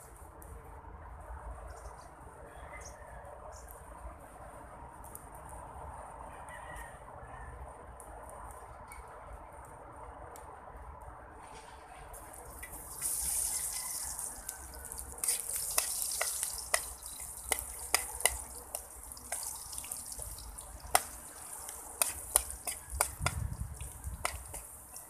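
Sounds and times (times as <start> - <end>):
rice sizzling in a wok: 12.2 - 25.0
spatula scraping a wok: 15.2 - 19.5, 21.7 - 23.4.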